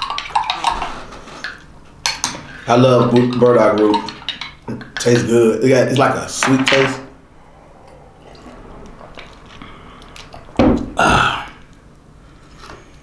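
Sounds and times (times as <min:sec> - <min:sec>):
breathy sound: 0:07.2 - 0:12.4.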